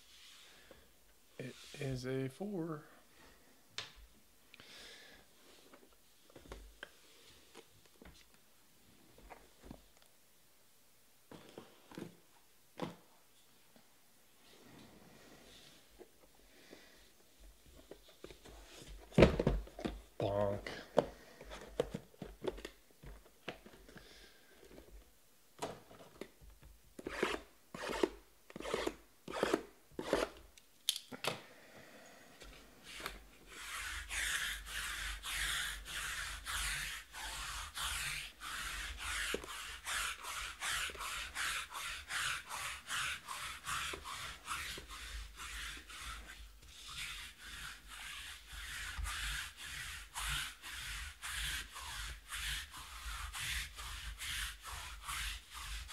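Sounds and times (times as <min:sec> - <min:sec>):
rubbing strokes: 0:01.4 - 0:02.0, 0:32.8 - 0:55.9.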